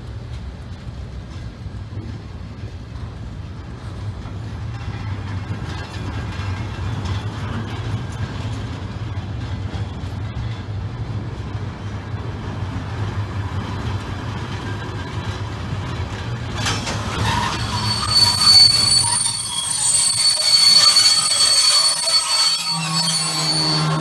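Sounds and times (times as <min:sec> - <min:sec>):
train running hum: 0:00.0 - 0:24.0
train wheels squealing: 0:04.5 - 0:10.7, 0:13.4 - 0:24.0.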